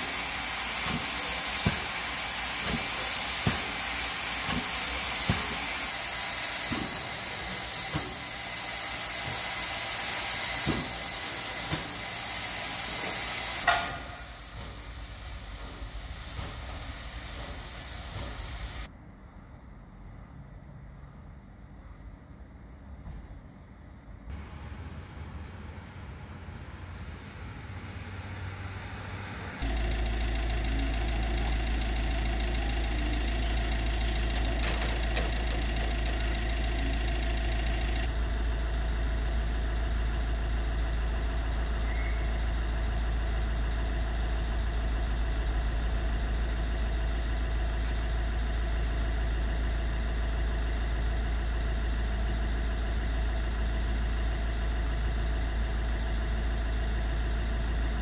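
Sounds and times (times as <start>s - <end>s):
loud mechanical drone: 24.4s - 46.5s.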